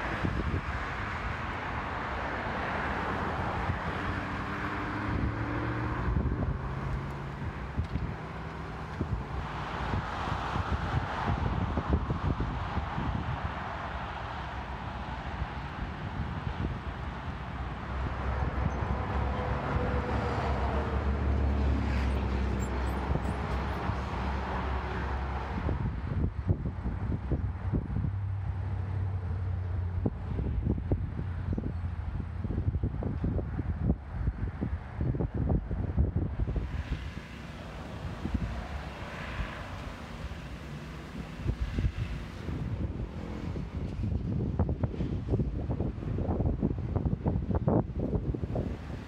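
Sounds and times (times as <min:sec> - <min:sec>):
vehicle passing: 0:00.0 - 0:25.9, 0:36.5 - 0:44.4
wind buffeting microphone: 0:00.0 - 0:49.0.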